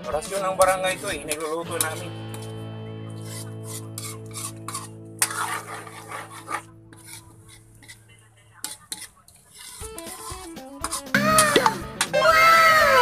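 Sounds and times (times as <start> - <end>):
metal spatula scraping a pan: 0.0 - 11.4.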